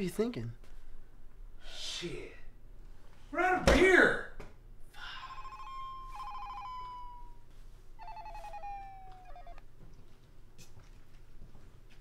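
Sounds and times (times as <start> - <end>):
phone ringtone ringing: 5.0 - 7.4, 8.0 - 9.6.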